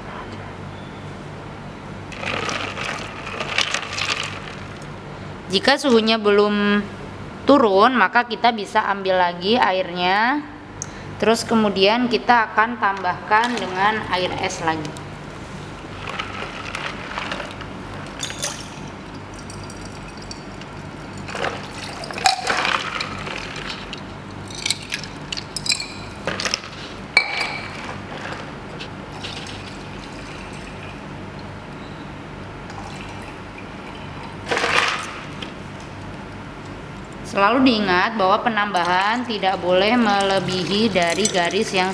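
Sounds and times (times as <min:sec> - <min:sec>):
glass and ice clinking: 0:18.2 - 0:23.8, 0:24.4 - 0:26.5, 0:27.2 - 0:27.9, 0:40.1 - 0:41.9.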